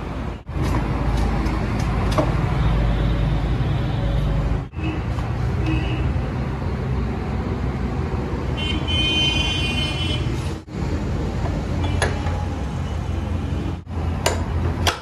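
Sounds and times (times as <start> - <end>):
traffic rumble: 0.0 - 15.0
vehicle horn honking: 8.6 - 10.4.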